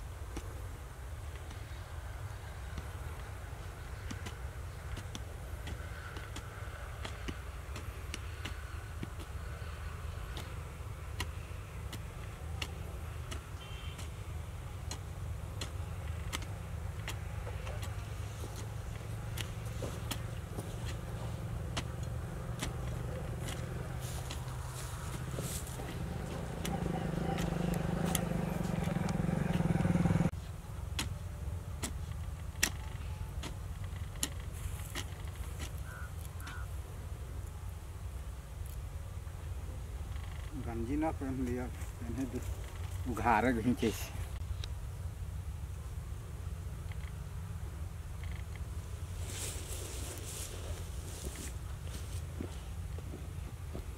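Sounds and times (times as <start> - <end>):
engine running: 0.9 - 37.9
hand hoe chopping hard soil: 3.9 - 29.7, 30.9 - 36.6.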